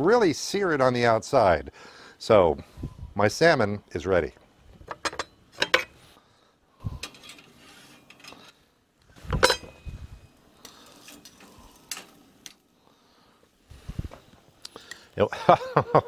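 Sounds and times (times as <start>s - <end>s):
metal tongs clinking and clattering: 4.9s - 5.9s, 7.0s - 8.5s, 9.3s - 9.9s, 10.6s - 12.6s.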